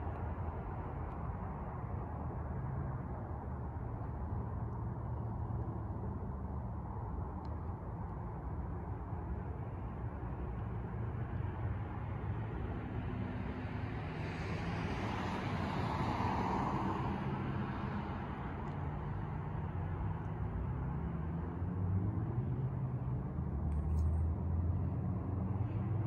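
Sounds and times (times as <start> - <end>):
car passing: 13.3 - 23.1.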